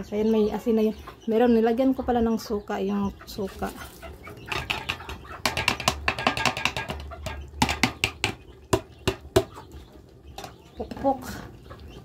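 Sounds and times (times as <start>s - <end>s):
spatula scraping cooking pot: 3.8s - 9.5s.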